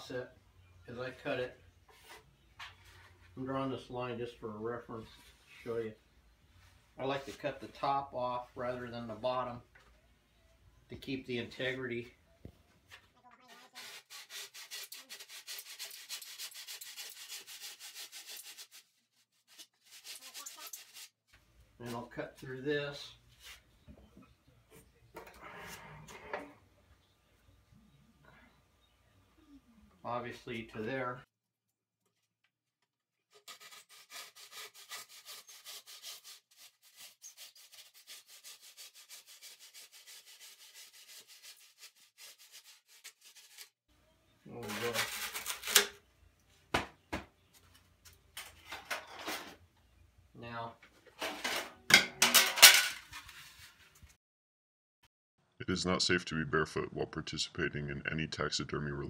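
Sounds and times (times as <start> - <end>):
handsaw cutting foam: 13.5 - 21.1, 33.3 - 43.8.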